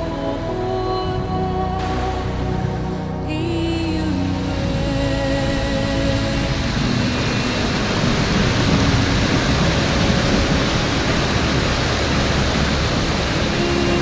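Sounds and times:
loud rushing noise: 0:06.1 - 0:14.0.

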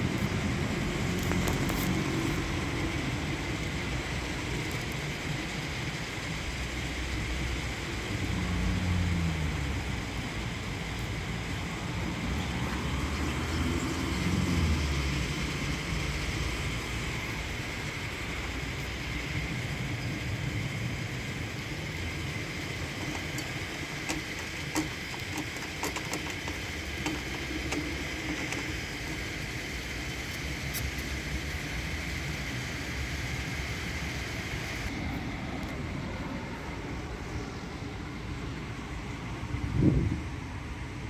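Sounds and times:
car wash brushes scrubbing: 0:20.4 - 0:31.9
sharp ticks and slaps: 0:23.0 - 0:28.8.

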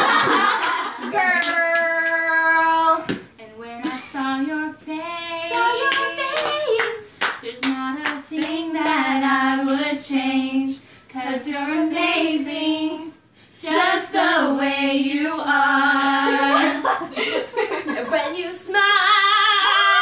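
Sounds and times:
hand claps: 0:00.2 - 0:02.3, 0:05.5 - 0:09.1
women singing unaccompanied: 0:01.0 - 0:17.0, 0:17.9 - 0:20.0.

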